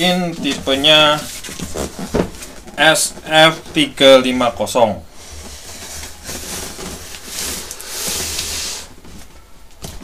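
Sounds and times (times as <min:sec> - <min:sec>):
cardboard box rubbing and sliding: 0:05.2 - 0:09.0.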